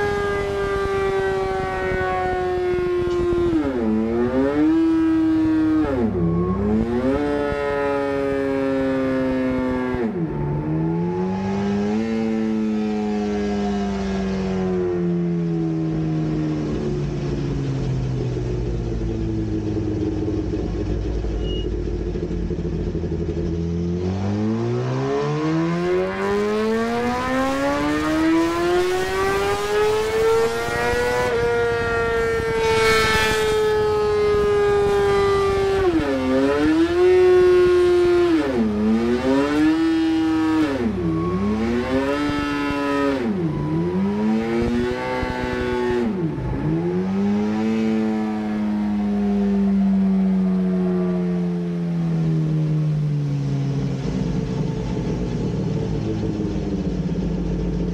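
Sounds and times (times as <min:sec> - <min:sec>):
motorcycle engine revving: 0:00.0 - 0:57.9.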